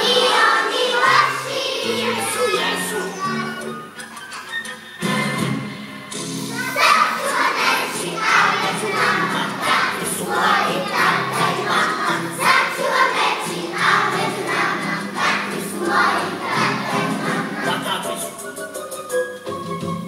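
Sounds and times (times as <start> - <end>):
children singing in unison: 0.0 - 3.5, 6.5 - 18.2.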